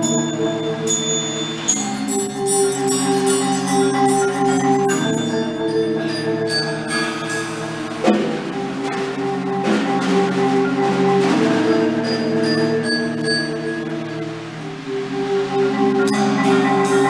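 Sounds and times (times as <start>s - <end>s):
marimbas and vibraphones playing chords: 0.0s - 17.0s
sharp percussion hit: 1.1s - 13.9s.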